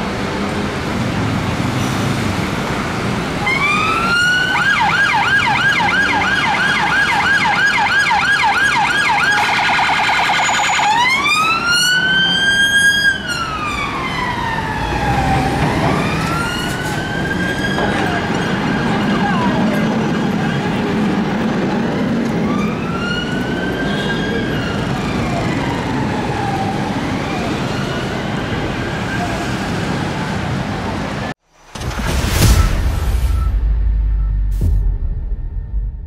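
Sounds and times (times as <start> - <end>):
traffic noise: 0.0 - 34.8
police car siren: 3.2 - 30.6.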